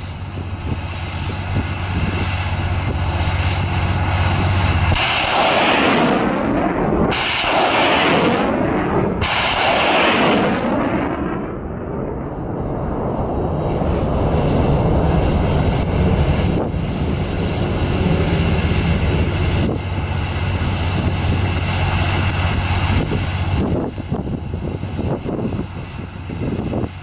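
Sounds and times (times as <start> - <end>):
sharp crack: 4.8 - 11.5
roar of rocket motors: 4.9 - 11.2.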